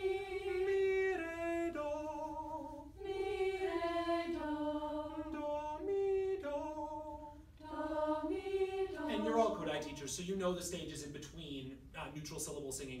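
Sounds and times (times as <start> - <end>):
group of voices singing: 0.0 - 10.2
leader singing note patterns: 0.0 - 11.0.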